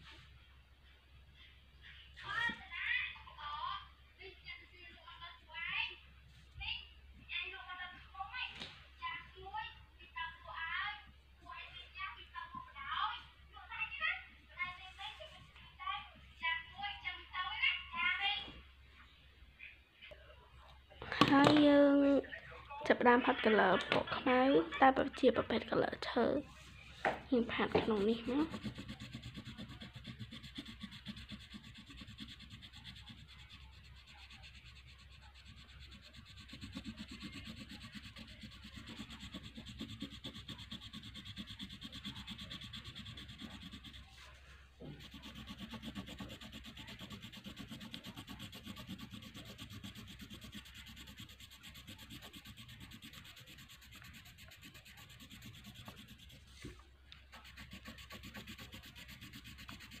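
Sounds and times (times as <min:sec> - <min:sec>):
crayon scratching on paper: 0:27.4 - 1:00.0.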